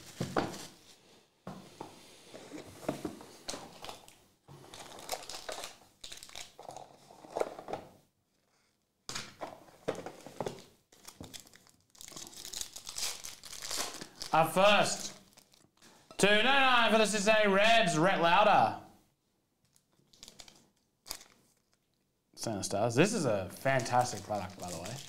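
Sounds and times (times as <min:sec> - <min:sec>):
foil wrappers crinkling: 0:03.7 - 0:07.4, 0:10.6 - 0:15.9, 0:19.7 - 0:21.9, 0:23.6 - 0:25.0.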